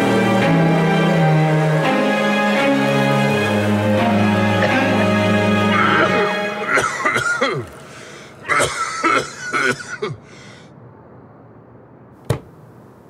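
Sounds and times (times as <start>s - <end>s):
man coughing: 5.7s - 7.7s, 8.4s - 10.3s.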